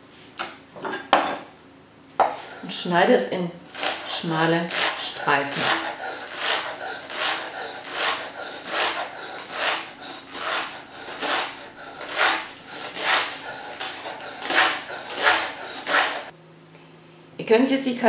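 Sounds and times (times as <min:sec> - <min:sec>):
knife slicing leek on wooden board: 0:04.7 - 0:16.3.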